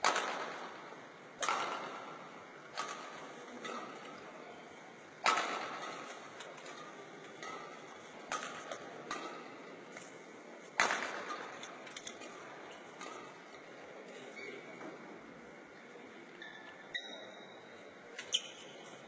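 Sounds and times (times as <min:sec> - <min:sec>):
racket hitting shuttlecock: 0:00.0 - 0:04.2, 0:05.2 - 0:13.6.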